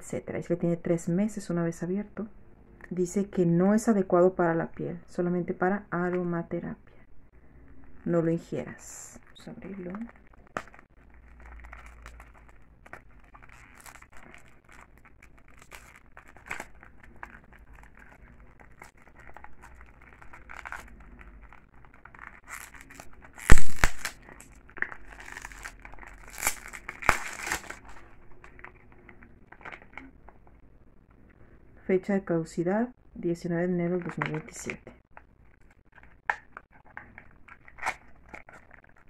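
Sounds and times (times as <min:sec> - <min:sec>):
plastic shrink wrap crinkling: 0:07.7 - 0:30.6, 0:34.0 - 0:39.0.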